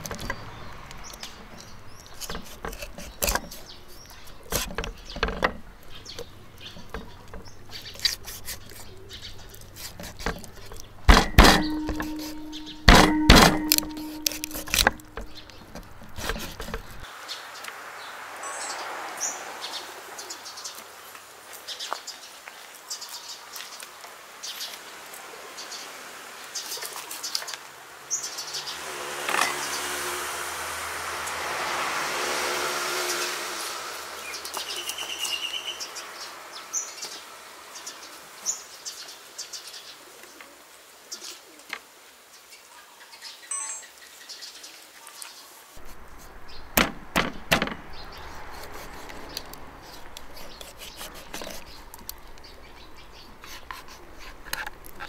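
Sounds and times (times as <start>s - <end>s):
birds chirping: 0.0s - 23.8s, 26.6s - 30.2s, 34.1s - 40.4s, 43.2s - 55.0s
knife chopping on wooden board: 11.1s - 15.4s
rushing noise: 28.5s - 34.4s.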